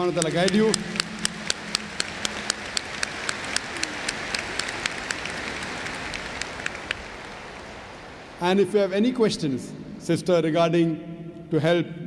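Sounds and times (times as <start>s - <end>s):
close claps: 0.0s - 8.3s
audience applauding: 0.0s - 8.4s.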